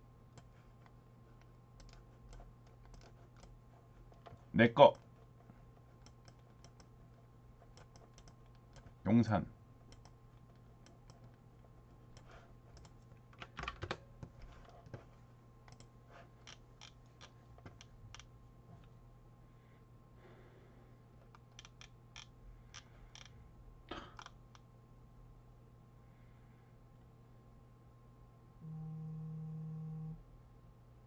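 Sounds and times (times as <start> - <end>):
faint low hum: 0.0 - 31.0
keyboard and mouse clicks: 0.3 - 5.1, 5.8 - 7.0, 7.6 - 9.0, 9.8 - 11.4, 12.0 - 15.0, 15.6 - 18.3, 21.2 - 23.4.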